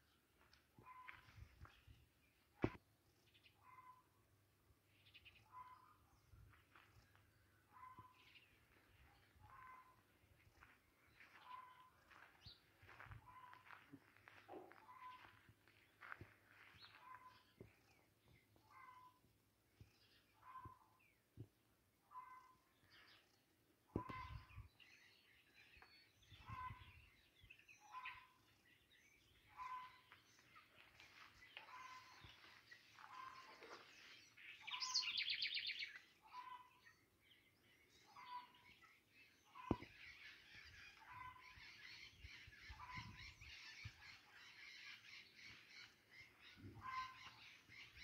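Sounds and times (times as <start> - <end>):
birds singing: 22.1 - 48.0.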